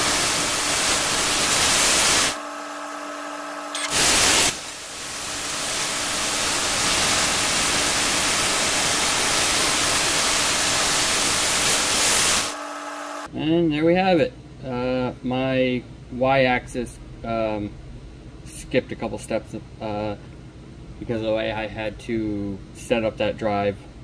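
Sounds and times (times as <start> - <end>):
laser welder cutting steel hiss: 0.0 - 13.3.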